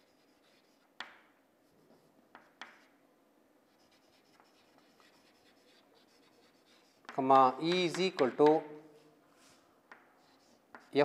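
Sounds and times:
chalk scratching on chalkboard: 0.0 - 3.0, 3.7 - 11.0
chalk tapping on chalkboard: 0.0 - 3.0, 3.7 - 11.0.

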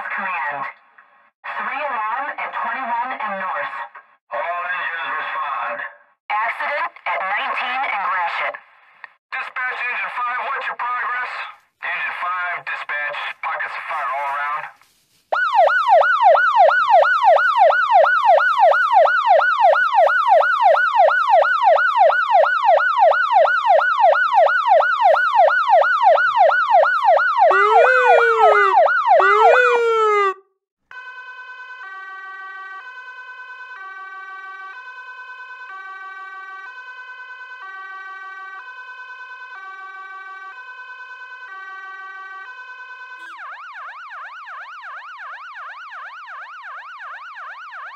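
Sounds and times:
toy siren wailing: 27.0 - 30.4
stepped electronic siren tones: 27.4 - 30.4.

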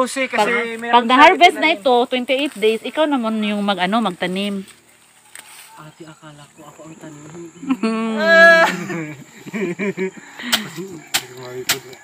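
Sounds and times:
people laughing: 7.6 - 10.9.

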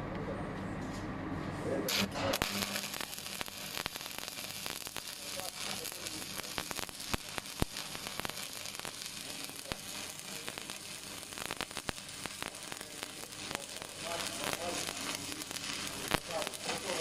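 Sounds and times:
welding arc crackling: 1.9 - 17.0.

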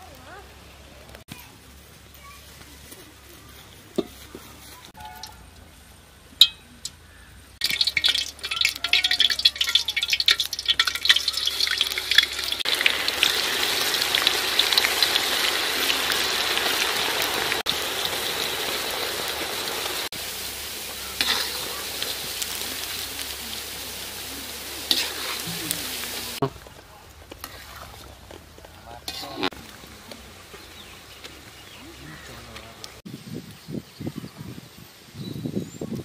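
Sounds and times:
metal clink: 6.4 - 7.0
food deep-frying in oil: 6.4 - 26.5, 27.3 - 28.4, 29.0 - 33.4.

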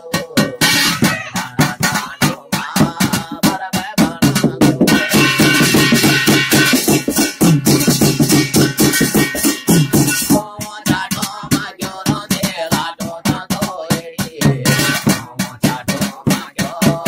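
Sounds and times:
person singing: 0.0 - 6.1, 9.8 - 17.0
fast dense drumming: 0.0 - 17.0.

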